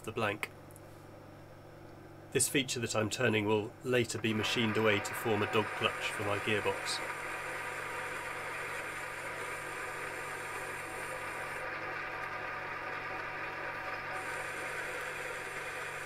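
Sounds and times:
metal lathe humming: 4.3s - 12.3s.

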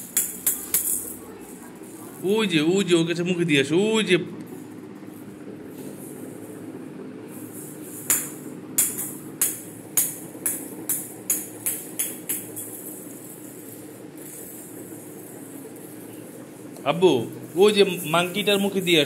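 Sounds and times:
plastic ball bouncing on tiles: 8.0s - 13.4s.

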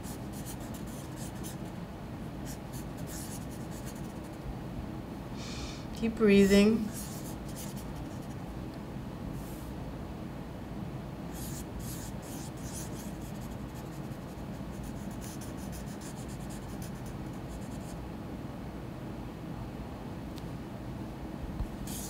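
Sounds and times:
pen scratching on paper: 0.0s - 1.6s, 2.5s - 4.3s, 6.9s - 8.3s, 11.4s - 18.0s.

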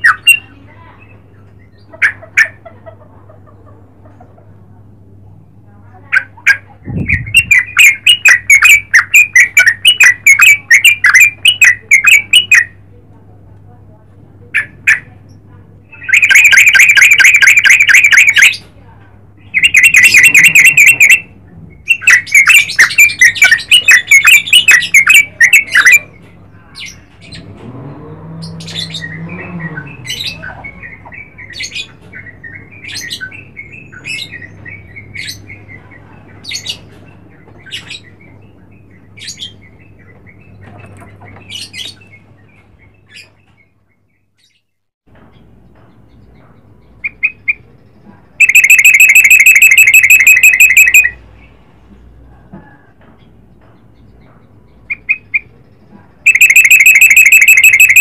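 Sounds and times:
bird chattering calls: 0.0s - 4.4s, 6.0s - 12.8s, 14.5s - 18.7s, 19.4s - 26.2s, 28.5s - 36.9s, 48.4s - 51.2s, 54.8s - 55.6s, 56.2s - 58.0s.

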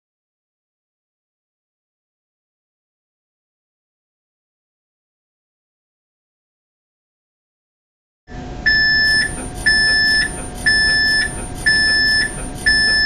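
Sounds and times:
steady machine hum: 8.3s - 13.0s
loud high electronic beeps: 8.7s - 13.0s.

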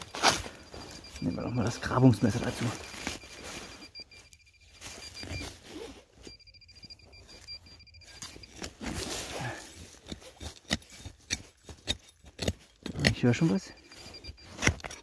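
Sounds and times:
pulsing high electronic tone: 0.0s - 9.6s
knife scraping soil: 8.1s - 15.0s.

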